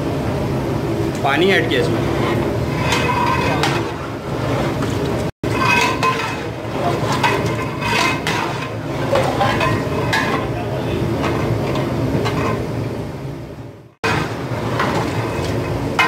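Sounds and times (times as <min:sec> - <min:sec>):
ladle scraping and clinking pot: 0:02.0 - 0:12.7, 0:14.0 - 0:16.0.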